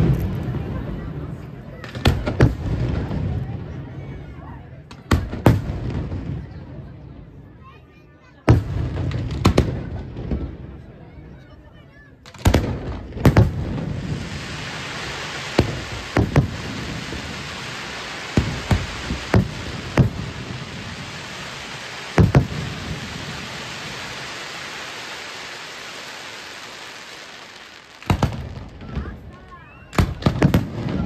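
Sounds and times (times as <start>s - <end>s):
firework shells bursting: 12.3s - 29.1s
hiss and crackle of burning stars: 13.4s - 29.5s.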